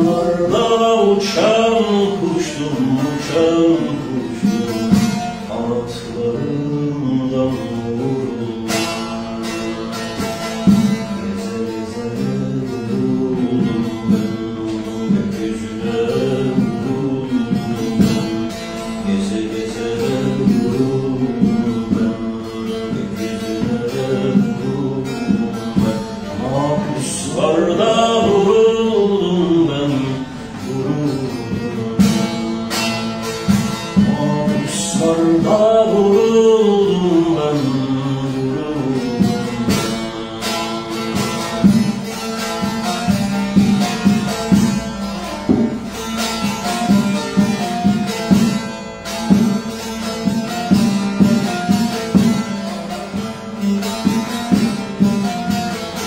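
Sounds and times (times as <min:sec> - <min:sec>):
man singing: 0:00.0 - 0:42.7
rapidly plucked long-necked lute: 0:00.0 - 0:56.0.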